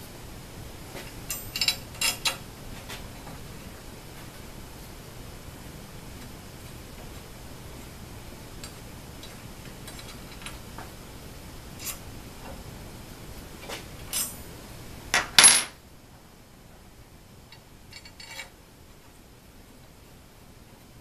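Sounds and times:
hex key and bolts clicking: 0:01.3 - 0:02.4.

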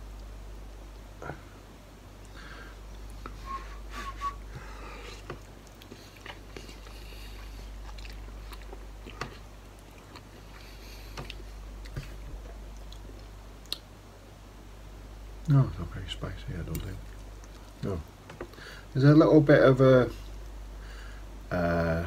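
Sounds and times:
man chewing noodles: 0:04.6 - 0:13.8, 0:16.8 - 0:18.2.

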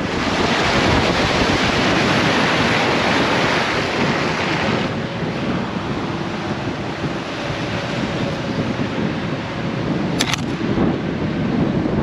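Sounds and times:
wind buffeting microphone: 0:00.0 - 0:12.0
sharp double click: 0:10.2 - 0:10.6.

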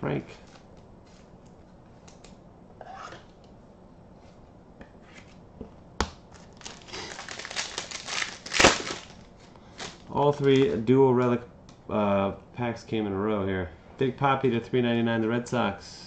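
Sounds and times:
foil wrapper tearing and crinkling: 0:06.4 - 0:10.8.

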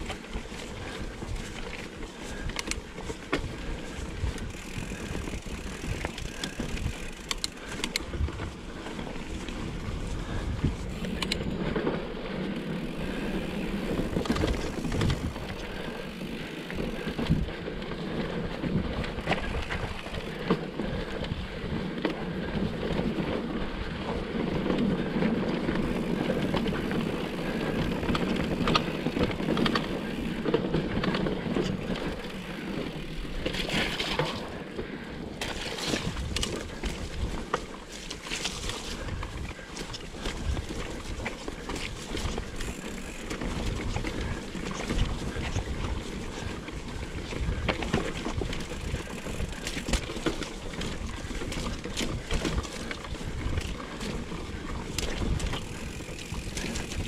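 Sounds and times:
bike tyres crunching over stones: 0:00.0 - 0:57.0.

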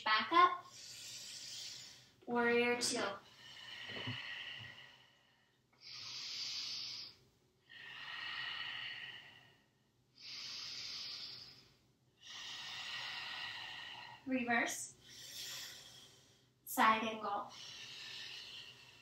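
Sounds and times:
woman breathing deeply: 0:00.7 - 0:02.2, 0:03.2 - 0:14.3, 0:14.9 - 0:16.6, 0:17.4 - 0:19.0.

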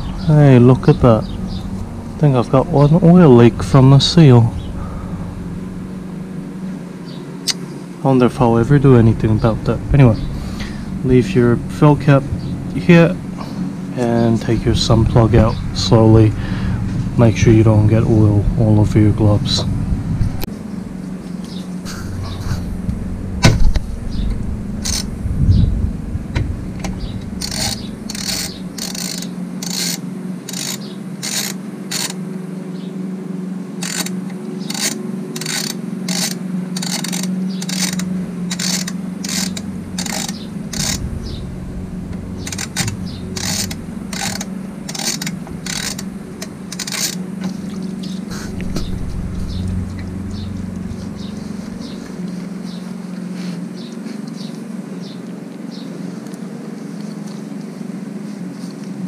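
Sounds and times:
low hum: 0:00.0 - 0:55.0
ratchet wrench rasping: 0:24.8 - 0:25.1, 0:27.2 - 0:32.2, 0:33.8 - 0:41.5, 0:42.1 - 0:47.3.

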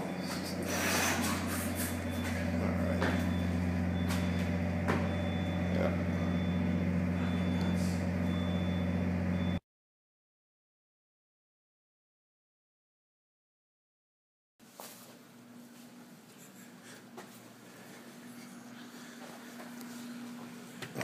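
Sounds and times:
machinery droning: 0:00.0 - 0:09.6
footsteps: 0:00.1 - 0:05.3, 0:14.7 - 0:20.6
faint high beep: 0:01.7 - 0:09.6.

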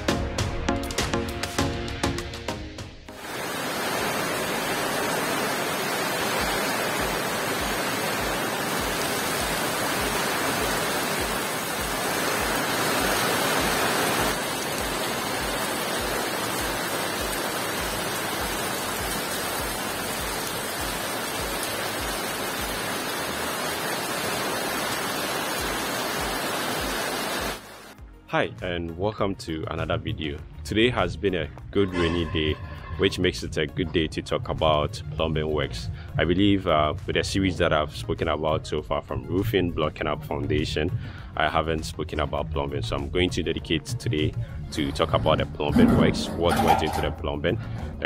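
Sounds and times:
heavy rain falling: 0:03.1 - 0:28.0, 0:44.7 - 0:47.8.

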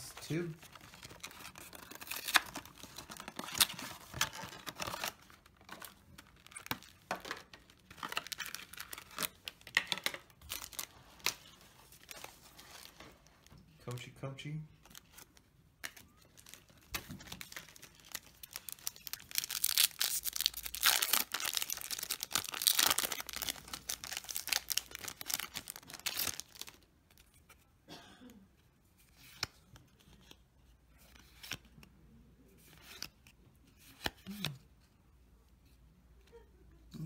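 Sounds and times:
foil wrapper tearing and crinkling: 0:17.2 - 0:26.8.

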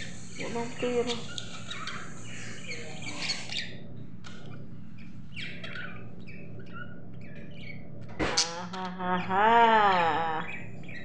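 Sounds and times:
budgerigars chirping: 0:00.0 - 0:07.8.

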